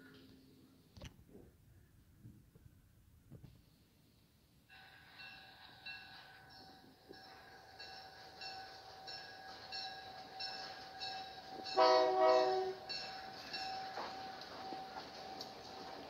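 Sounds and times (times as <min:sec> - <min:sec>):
model train whine with clicks: 0:04.7 - 0:16.0
train horn blast: 0:11.7 - 0:12.9.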